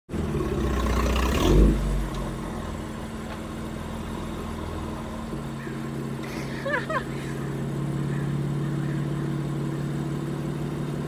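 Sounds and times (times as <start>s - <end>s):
car engine at low speed: 0.1s - 11.0s.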